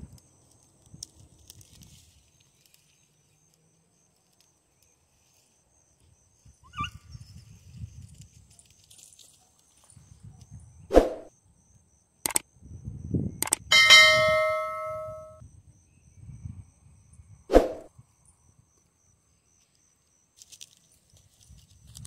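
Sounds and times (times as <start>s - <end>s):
dog yelping: 6.6s - 7.0s.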